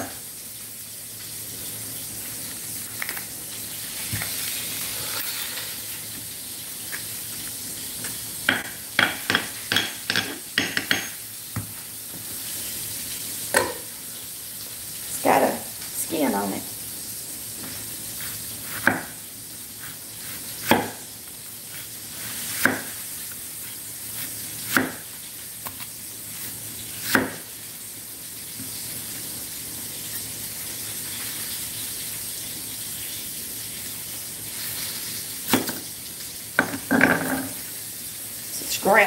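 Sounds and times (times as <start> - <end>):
hot oil frying hiss: 0.0 - 39.0
knife knocking on wooden board: 8.5 - 11.7
knife slicing onion: 8.5 - 11.7, 17.6 - 27.6, 35.4 - 35.9.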